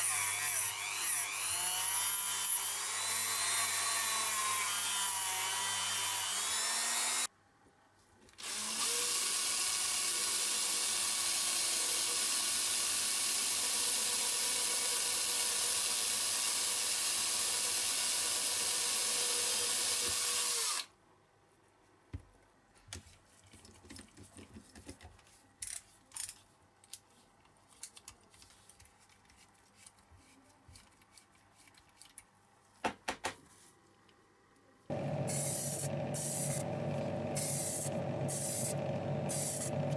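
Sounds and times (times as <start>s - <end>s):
rotary tool grinding metal: 0.0s - 7.3s, 34.9s - 39.9s
cordless drill drilling: 8.4s - 20.9s, 34.9s - 39.9s.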